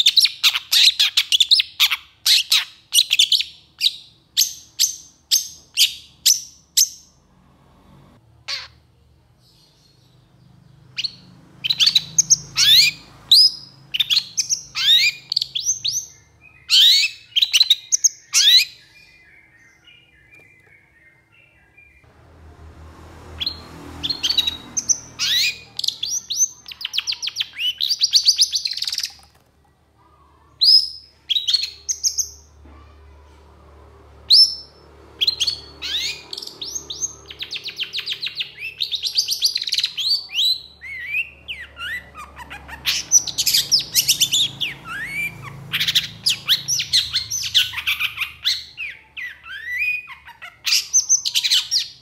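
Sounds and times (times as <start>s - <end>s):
bird singing rattling trills: 34.3s - 52.0s.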